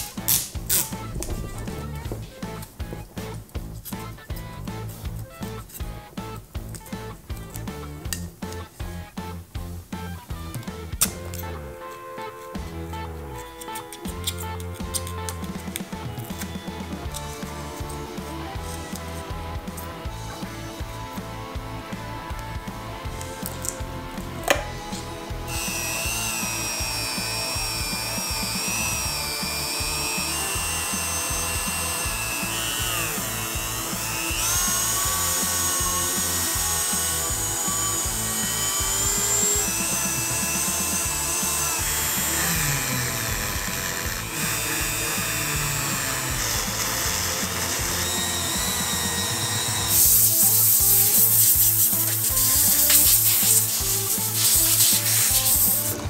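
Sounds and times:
background music with a beat: 0.0s - 56.0s
rotary tool grinding whine: 11.3s - 56.0s
brush scrubbing engine part: 24.9s - 56.0s.

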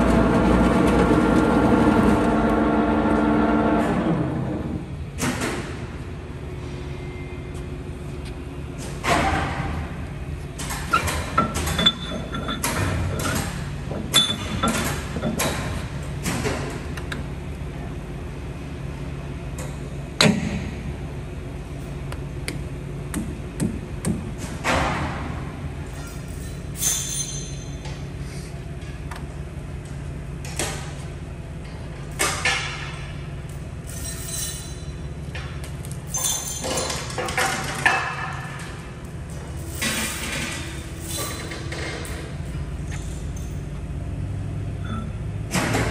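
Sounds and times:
low machine hum: 0.0s - 45.9s
metallic clinks and scrapes: 25.9s - 27.8s, 33.8s - 35.0s, 36.1s - 37.4s
metal clinks and scrapes: 25.9s - 27.9s, 33.6s - 35.1s, 36.0s - 43.7s.

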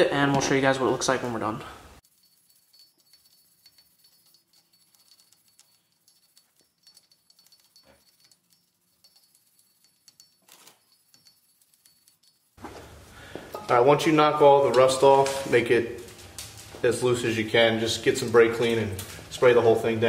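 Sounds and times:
wire brush scraping rust: 2.0s - 13.1s.

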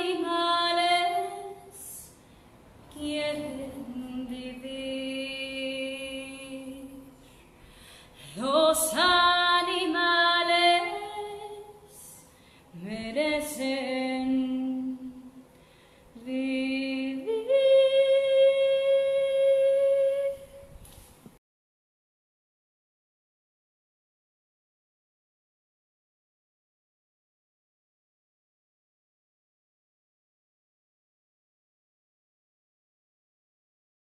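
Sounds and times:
woman singing a cappella: 0.0s - 2.2s, 2.9s - 7.3s, 8.2s - 15.6s, 16.2s - 20.7s.

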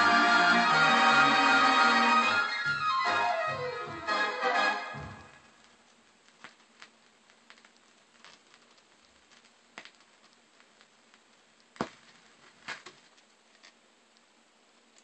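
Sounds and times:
vinyl record crackle and hiss: 0.0s - 15.0s
vinyl record clicks: 5.0s - 14.3s.

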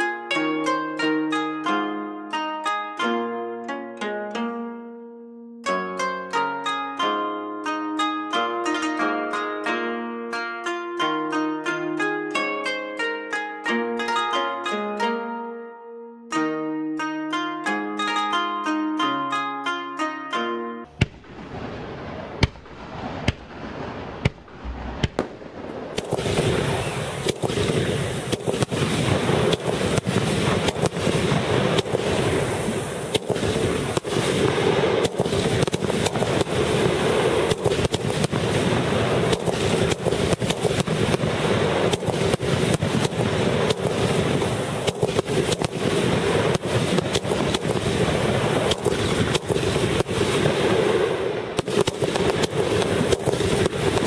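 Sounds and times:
rapid firework barrage: 20.9s - 54.0s
firework launches and bangs: 21.0s - 54.0s.

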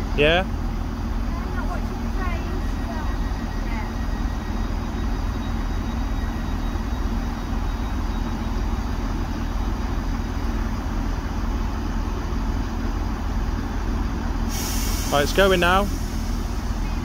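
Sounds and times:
diesel train engine idling: 0.0s - 17.0s.

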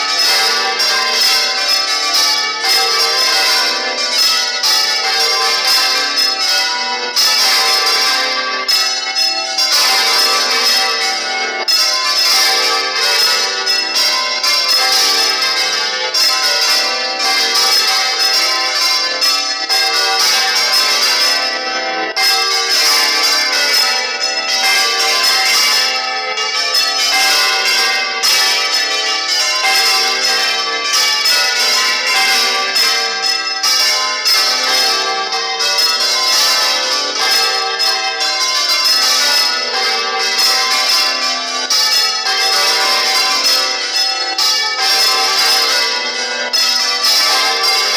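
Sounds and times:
church bells pealing: 0.0s - 47.9s.

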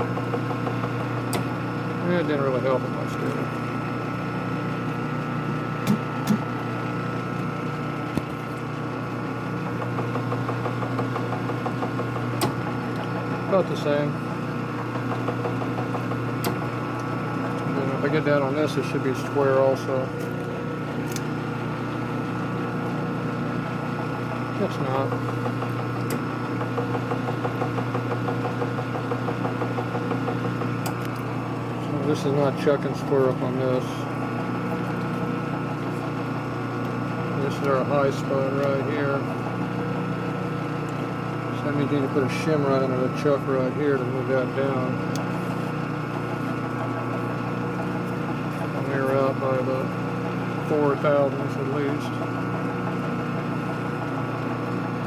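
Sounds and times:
steady machine hum: 0.0s - 55.0s
lathe chuck ticking: 9.7s - 19.3s, 23.6s - 42.4s.

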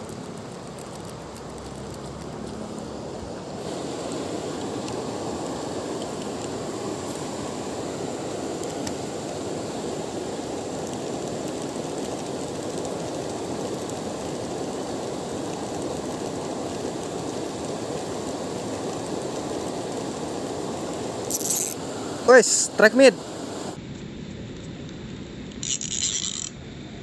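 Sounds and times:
river water rushing over rocks: 0.0s - 23.8s.

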